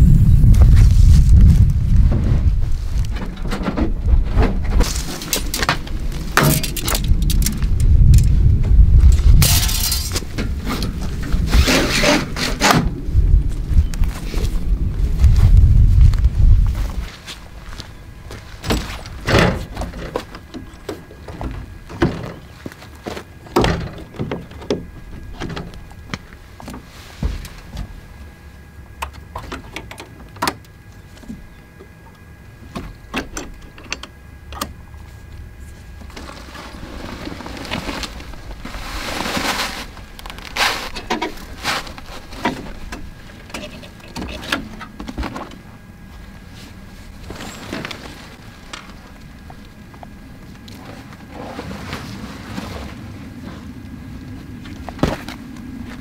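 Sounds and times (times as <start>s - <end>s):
tent fabric rustling: 36.1s - 42.9s, 50.8s - 53.7s.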